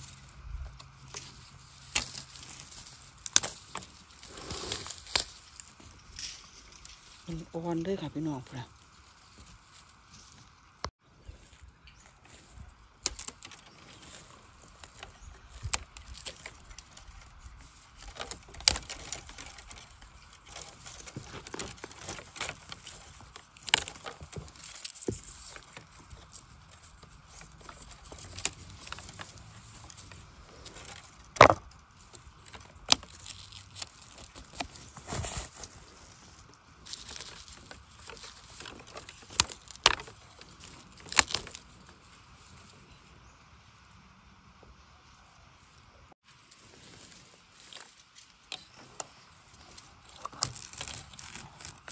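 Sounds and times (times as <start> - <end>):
bamboo shoots snapping: 0.0 - 7.3, 12.3 - 35.8, 36.6 - 42.0, 47.7 - 51.9
dry stalks crackling: 0.0 - 43.9, 46.2 - 51.9.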